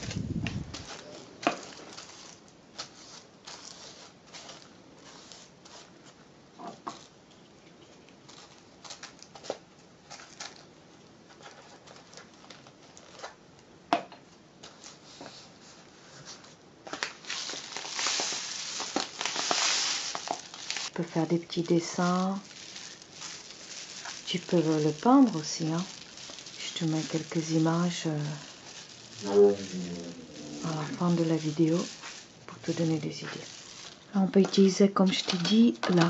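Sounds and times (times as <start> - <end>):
paper rustling: 0.0 - 6.2, 14.6 - 36.0
rice running inside tube: 17.4 - 21.0, 21.8 - 34.2.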